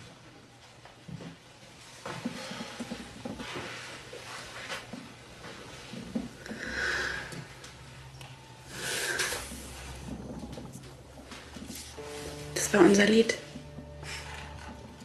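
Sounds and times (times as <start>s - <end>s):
person breathing: 6.4s - 7.6s, 8.6s - 10.0s, 14.0s - 14.6s.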